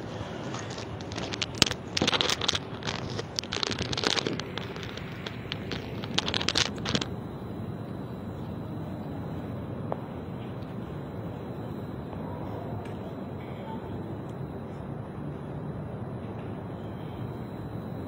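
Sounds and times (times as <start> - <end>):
rustling and scraping: 0.0 - 7.1
steady background noise: 0.0 - 18.0
scattered clicks: 0.5 - 7.1.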